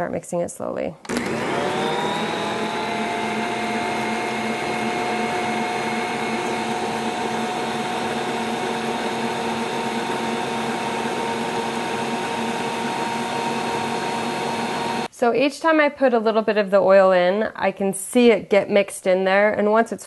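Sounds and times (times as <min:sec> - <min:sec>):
stand mixer motor whining: 0:01.1 - 0:15.1.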